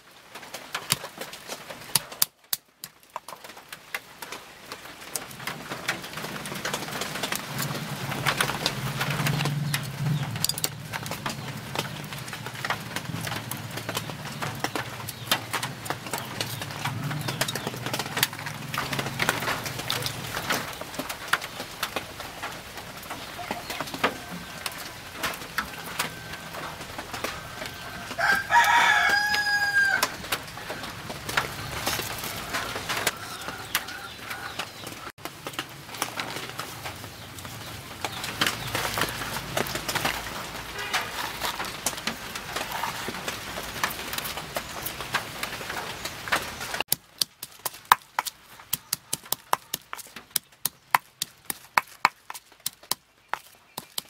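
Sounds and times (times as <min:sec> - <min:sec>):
rooster crowing: 0:25.7 - 0:30.9, 0:32.2 - 0:34.7.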